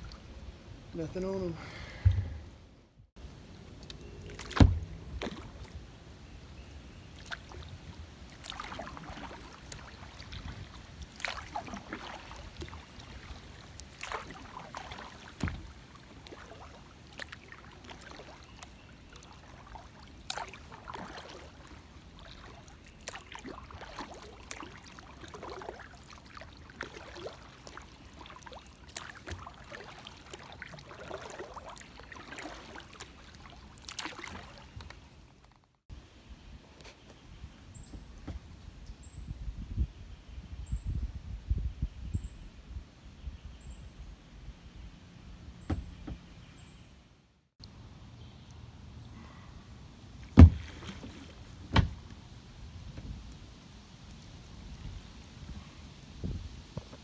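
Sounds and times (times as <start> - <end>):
paddle strokes in water: 3.6 - 5.9, 7.1 - 35.6, 50.2 - 52.2
water dripping and gurgling: 7.2 - 35.6.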